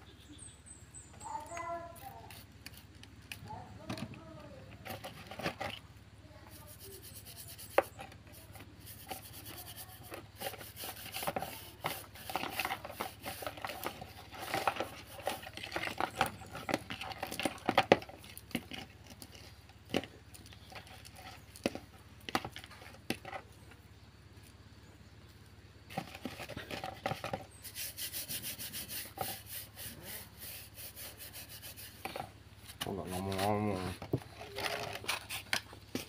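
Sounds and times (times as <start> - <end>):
brush scrubbing chain: 1.8 - 3.6, 6.4 - 19.7, 25.9 - 36.0.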